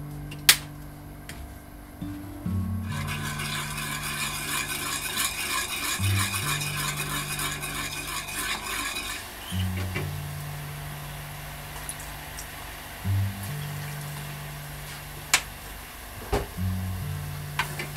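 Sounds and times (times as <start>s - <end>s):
spoon stirring liquid: 2.9s - 9.4s
liquid bubbling in a saucepan: 2.9s - 9.7s.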